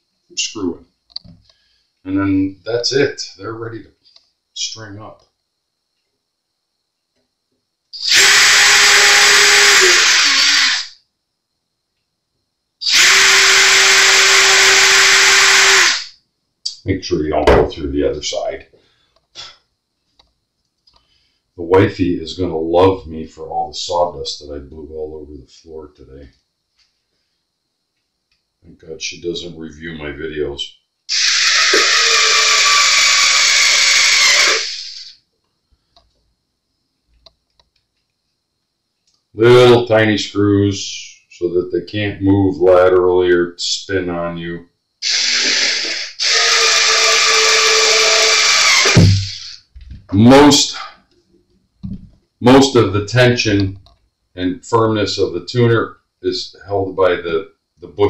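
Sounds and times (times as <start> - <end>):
cordless drill boring wood: 8.0 - 10.9, 12.8 - 16.1, 31.1 - 35.1, 45.0 - 49.6.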